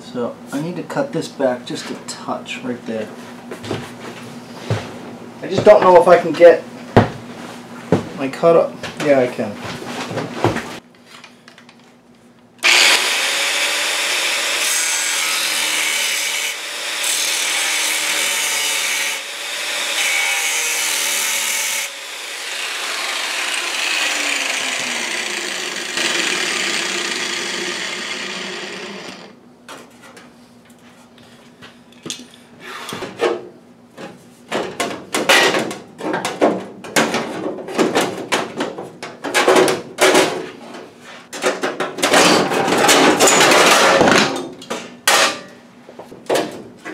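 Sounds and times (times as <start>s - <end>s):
angle grinder cutting steel: 12.6s - 29.3s.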